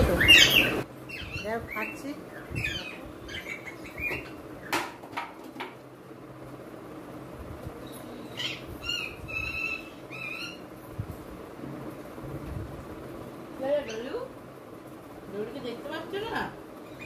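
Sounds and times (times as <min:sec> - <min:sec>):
bird chirping: 0:00.0 - 0:04.8, 0:07.8 - 0:10.7, 0:16.8 - 0:17.0.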